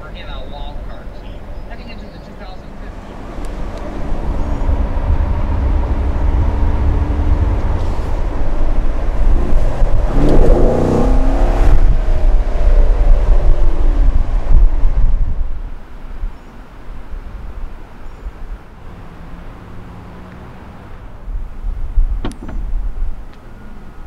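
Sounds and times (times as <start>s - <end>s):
car engine accelerating: 2.7s - 15.8s.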